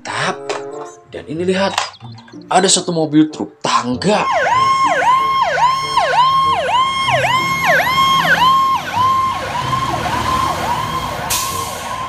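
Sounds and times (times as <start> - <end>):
fire truck siren yelping: 4.0 - 12.0.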